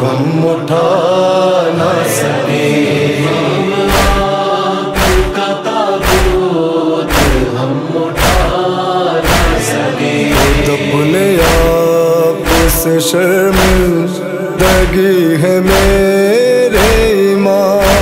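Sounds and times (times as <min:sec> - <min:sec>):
chorus of voices chanting: 0:00.0 - 0:18.0
heavy drum beat: 0:03.9 - 0:04.4, 0:05.0 - 0:05.4, 0:06.0 - 0:07.6, 0:08.2 - 0:08.6, 0:09.2 - 0:10.8, 0:11.4 - 0:11.8, 0:12.4 - 0:12.9, 0:13.5 - 0:15.0, 0:15.7 - 0:16.1, 0:16.8 - 0:17.1.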